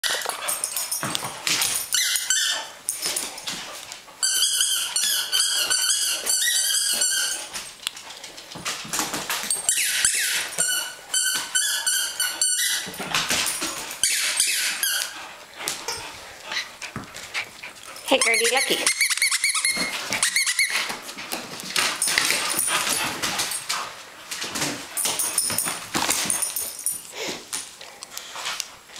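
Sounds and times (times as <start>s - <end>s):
squeaky dog toy squeaking: 1.9s - 2.7s, 4.2s - 7.4s, 9.6s - 12.9s, 14.0s - 15.2s, 18.0s - 20.9s.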